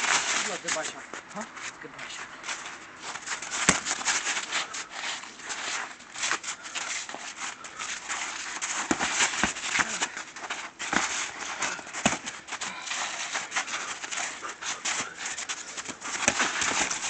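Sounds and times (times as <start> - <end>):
feet crunching in snow: 0.0 - 17.0
boxing gloves smacking: 3.3 - 4.5, 8.4 - 17.0
sharp thuds: 3.4 - 4.4.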